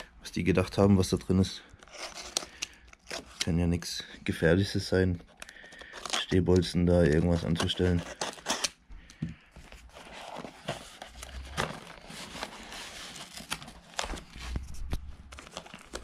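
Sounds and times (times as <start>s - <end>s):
packing material rustling: 9.6s - 16.0s.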